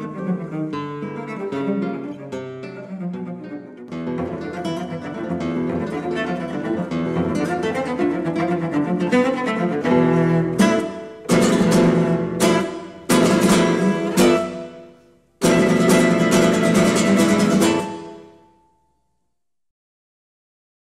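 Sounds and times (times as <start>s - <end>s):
strummed acoustic guitar chords: 9.8s - 18.5s.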